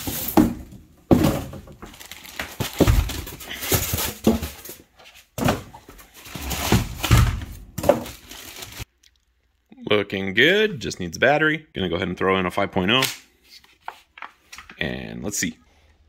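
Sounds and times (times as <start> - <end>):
packaging rustling: 1.2 - 8.9.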